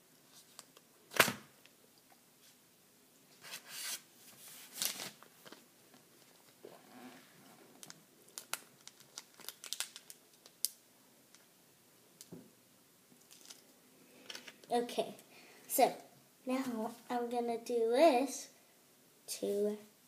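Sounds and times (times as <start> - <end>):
paper tearing and crinkling: 3.4 - 5.6
small crackles and clicks: 7.8 - 11.5, 13.2 - 14.7.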